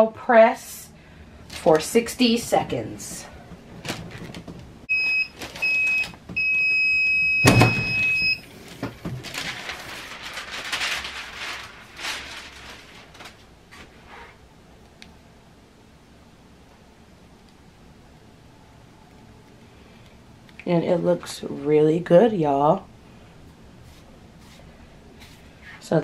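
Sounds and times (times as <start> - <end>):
paper rustling: 8.5 - 14.4, 23.8 - 25.8.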